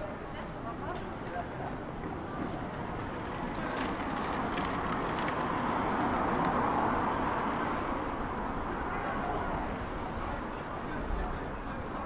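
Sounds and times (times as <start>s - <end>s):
vehicle passing: 2.2s - 11.1s.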